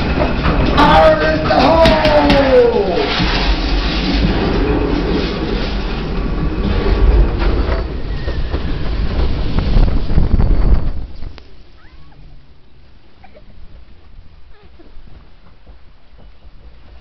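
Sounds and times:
rushing water: 0.0 - 7.3
boat rumbling and clattering: 0.0 - 17.0.

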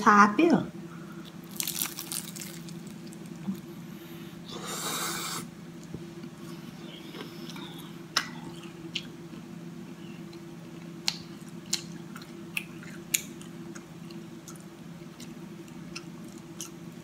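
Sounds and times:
steady low hum: 0.0 - 17.0
crunchy bite into egg roll: 1.5 - 3.3
quiet wet chewing: 7.0 - 9.5, 10.1 - 17.0.

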